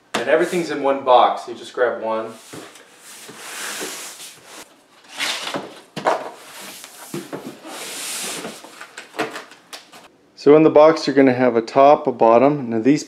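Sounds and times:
cardboard rustling: 2.4s - 10.1s.

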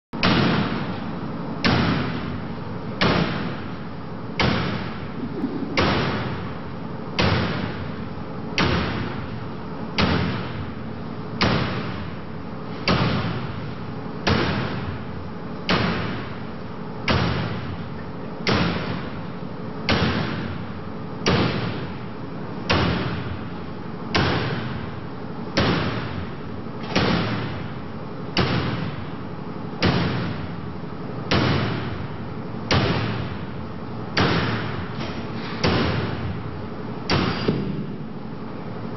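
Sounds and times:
axe striking metal wire mesh: 37.1s - 37.8s.

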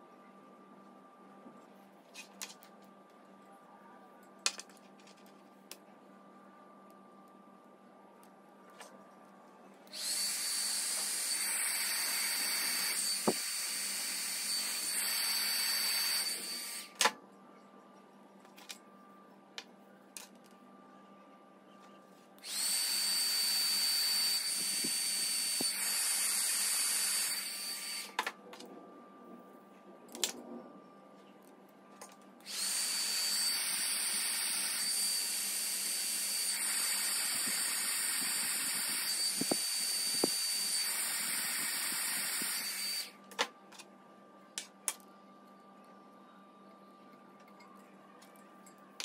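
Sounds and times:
heat gun blowing with whine: 9.9s - 17.1s, 22.4s - 28.2s, 32.4s - 43.2s.

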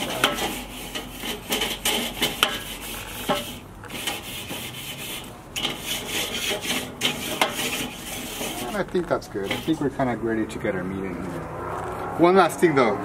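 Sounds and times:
grill brush scraping grate: 0.0s - 10.2s.

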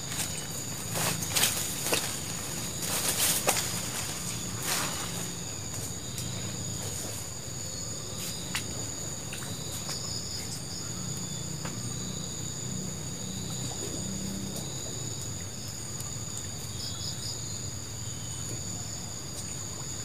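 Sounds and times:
brush rustling: 0.0s - 6.0s.

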